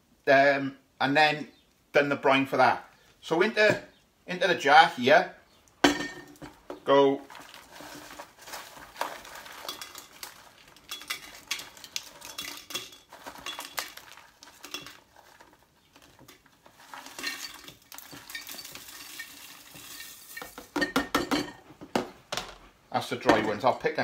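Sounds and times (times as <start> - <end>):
plastic tub handling: 6.3 - 10.8
dried chillies rattling: 6.3 - 20.8.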